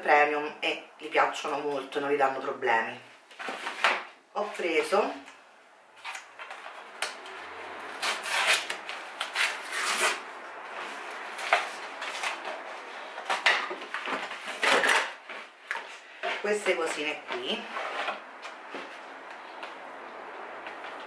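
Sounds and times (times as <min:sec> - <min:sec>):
paper tearing and crinkling: 0:07.8 - 0:10.3.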